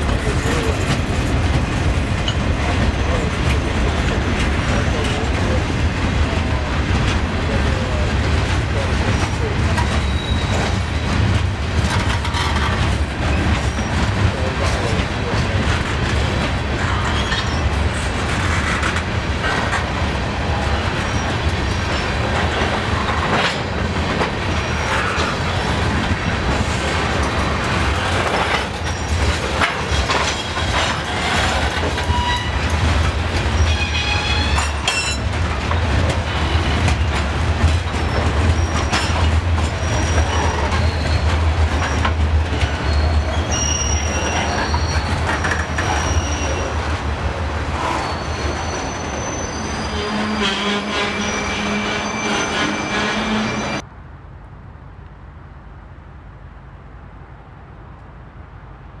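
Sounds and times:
wheels clicking over rail joints: 0:00.0 - 0:20.0, 0:21.0 - 0:48.8
freight train rumbling past: 0:00.0 - 0:54.0
high wheel squeal: 0:09.8 - 0:11.1, 0:30.4 - 0:32.8, 0:33.6 - 0:35.2, 0:38.0 - 0:39.2, 0:39.8 - 0:53.8.

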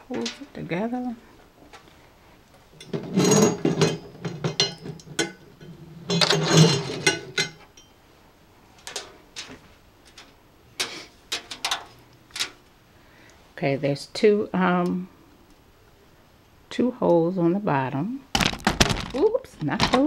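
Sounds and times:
metal frame scraping on table: 0:02.8 - 0:07.5.

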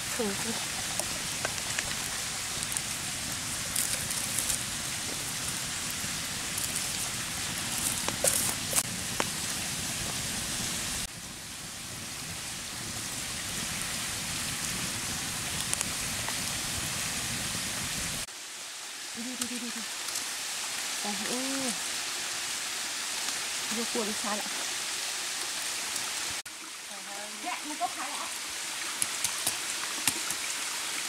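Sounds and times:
campfire crackling and popping: 0:00.0 - 0:18.2, 0:28.8 - 0:30.6.

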